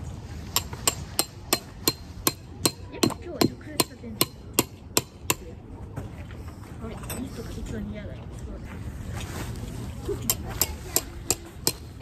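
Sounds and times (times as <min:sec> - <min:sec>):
hammer striking tent peg: 0:00.5 - 0:05.4, 0:10.3 - 0:12.0.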